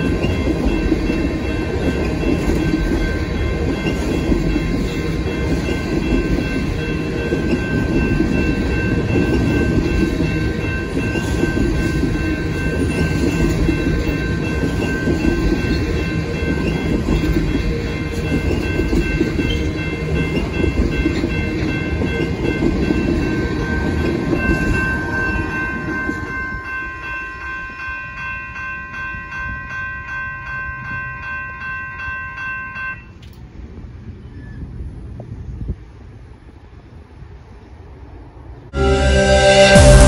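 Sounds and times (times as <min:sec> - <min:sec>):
train wheels rumbling on rails: 0:00.0 - 0:31.1
high ringing tones: 0:00.0 - 0:33.2.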